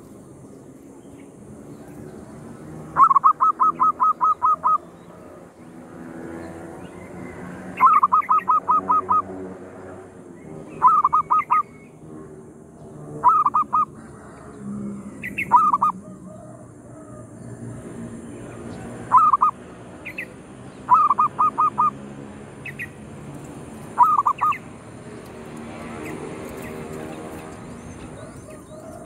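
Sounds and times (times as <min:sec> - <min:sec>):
dove staccato cooing: 0:03.0 - 0:05.4, 0:13.2 - 0:17.4, 0:18.9 - 0:19.5.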